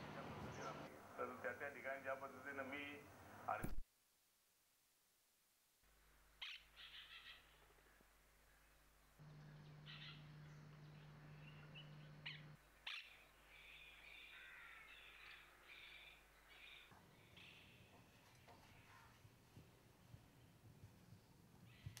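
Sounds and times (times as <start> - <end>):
small birds chirping: 0.4 - 0.9, 6.3 - 22.0
steady low hum: 7.6 - 14.0
crows cawing: 12.3 - 17.7.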